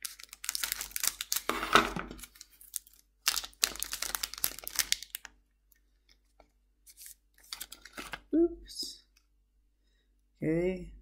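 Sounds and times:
foil wrapper crinkling: 0:00.0 - 0:05.4, 0:06.9 - 0:08.2.

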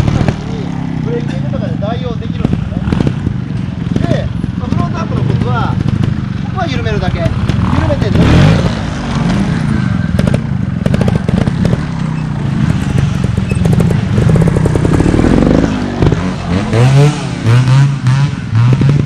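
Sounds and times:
motorcycle engine revving: 0:00.0 - 0:19.0
sharp throttle blips: 0:07.6 - 0:19.0.

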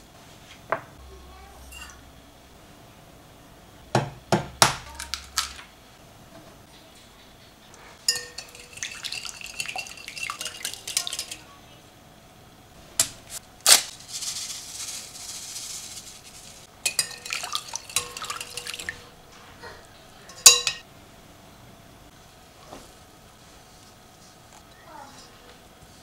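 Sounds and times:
whisk clinking against glass bowl: 0:01.7 - 0:02.0, 0:08.1 - 0:11.4, 0:16.8 - 0:19.1, 0:20.3 - 0:20.8
sugar pouring from paper packet: 0:13.7 - 0:16.7.

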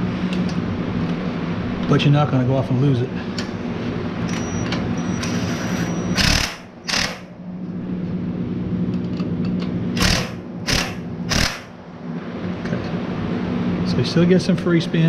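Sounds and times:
impact wrench hammering: 0:06.2 - 0:07.3, 0:10.0 - 0:11.7
impact wrench motor humming: 0:06.2 - 0:07.3, 0:10.0 - 0:11.7.

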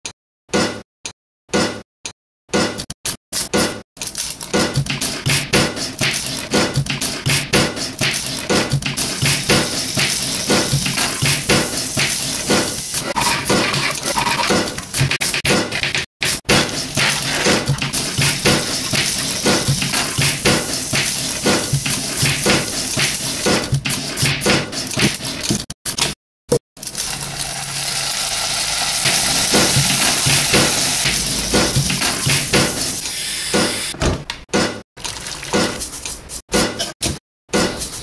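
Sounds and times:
utensils knocking on pan: 0:04.6 - 0:24.6, 0:29.1 - 0:33.0
food sizzling in a frying pan: 0:09.2 - 0:13.1, 0:17.9 - 0:23.4, 0:26.8 - 0:31.3.

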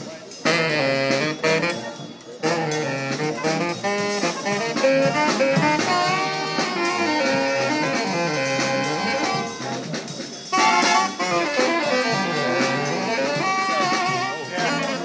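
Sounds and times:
military brass band playing march: 0:00.0 - 0:15.0.

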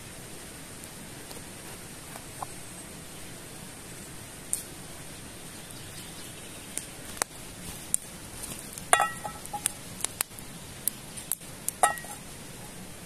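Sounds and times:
campfire crackling and popping: 0:00.1 - 0:13.0
frying pan metallic clink: 0:08.9 - 0:09.7, 0:11.8 - 0:12.2.

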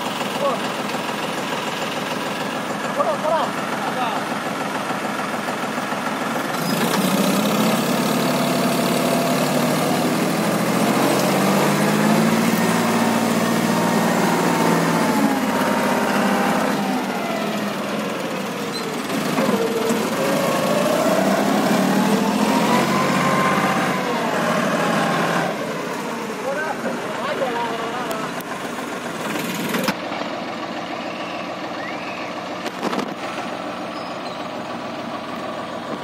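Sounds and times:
diesel engine running under load: 0:00.0 - 0:36.0
whine changing pitch: 0:19.7 - 0:25.3.

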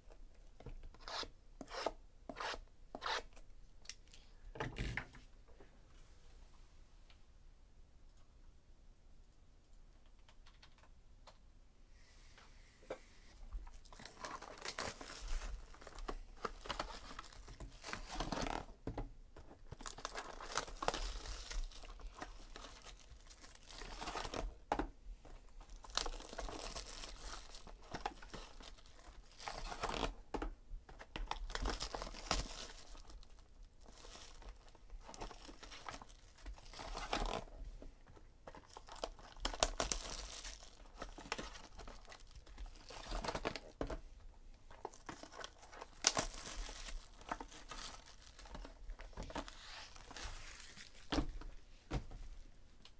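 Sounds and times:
plastic wrap crinkling and tearing: 0:13.6 - 0:18.8, 0:19.5 - 0:24.6, 0:25.6 - 0:30.2, 0:30.9 - 0:37.5, 0:38.4 - 0:43.8, 0:44.7 - 0:51.5.

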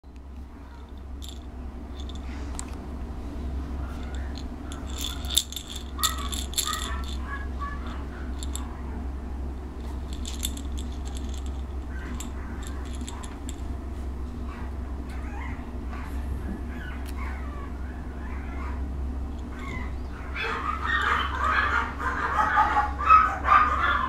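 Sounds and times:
steady low hum: 0:00.0 - 0:24.0
toy rattle shaking: 0:00.7 - 0:02.4, 0:03.9 - 0:08.8, 0:09.6 - 0:13.8.

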